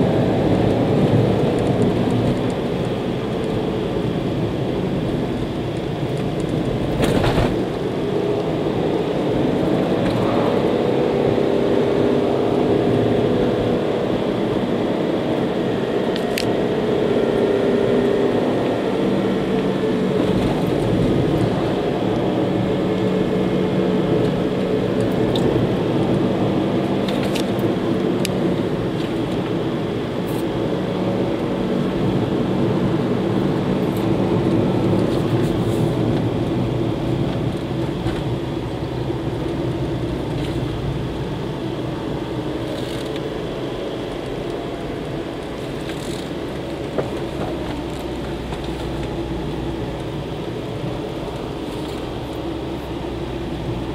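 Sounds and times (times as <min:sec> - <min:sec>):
car engine and tyre drone: 0:00.0 - 0:53.9.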